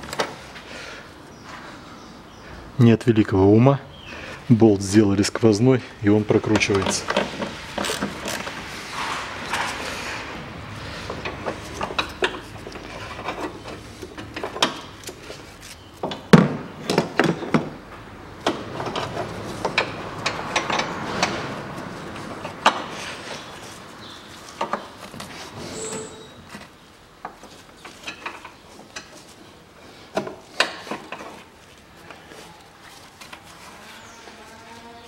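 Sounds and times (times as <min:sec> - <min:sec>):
hand tools clicking and scraping: 0:06.3 - 0:16.3.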